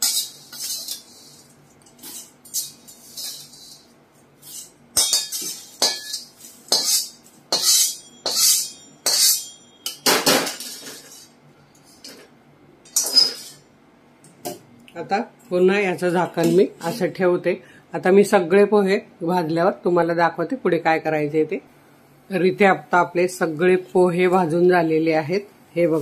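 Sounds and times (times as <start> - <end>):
metal clinking on tin rim: 4.6 - 11.3.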